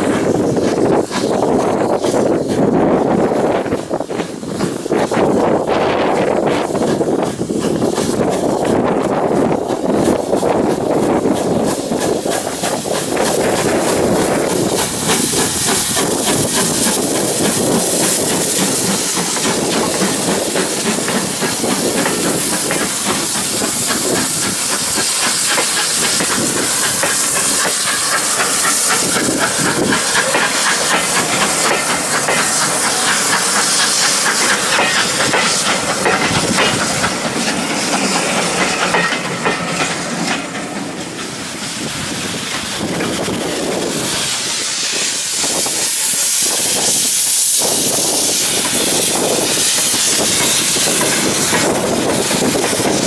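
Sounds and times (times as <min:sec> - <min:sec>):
steam hissing: 0:00.0 - 0:53.0
coaches clattering over rail joints: 0:06.2 - 0:45.6.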